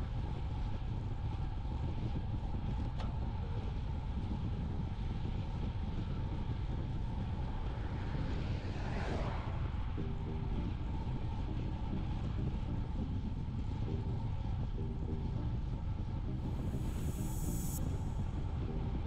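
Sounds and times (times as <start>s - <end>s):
vehicle passing: 7.1s - 11.2s.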